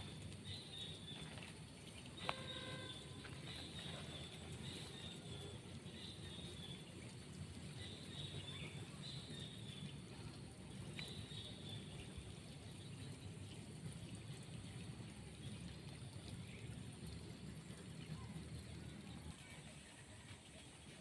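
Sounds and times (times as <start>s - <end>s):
running water trickling: 0.0s - 21.0s
faint high bird chirps: 2.2s - 6.7s.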